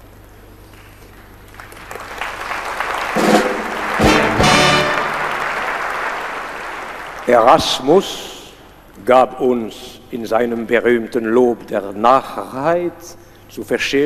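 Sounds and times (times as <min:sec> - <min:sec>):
audience applause: 0:01.4 - 0:07.8
brass band flourish: 0:03.2 - 0:06.1.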